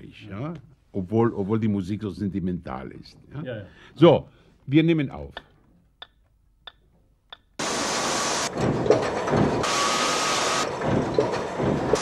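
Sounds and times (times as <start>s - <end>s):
loud industrial machinery: 7.6s - 12.0s.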